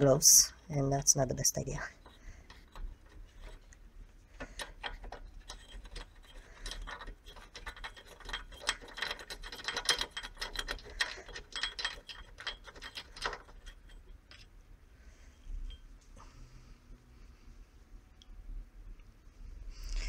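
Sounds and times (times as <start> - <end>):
rapid metallic clicking: 4.4 - 14.4.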